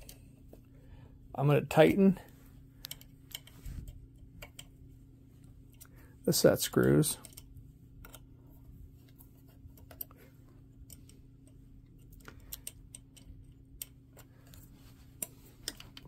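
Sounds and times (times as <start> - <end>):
faint low hum: 0.0 - 16.0
hex key metallic clicks: 2.8 - 4.7, 7.1 - 8.3, 10.8 - 14.6.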